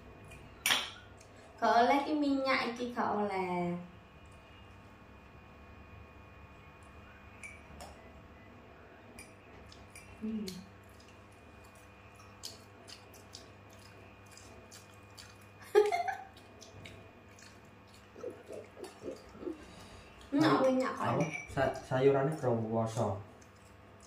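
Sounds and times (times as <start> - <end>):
chewing: 9.2 - 21.0, 21.6 - 24.0.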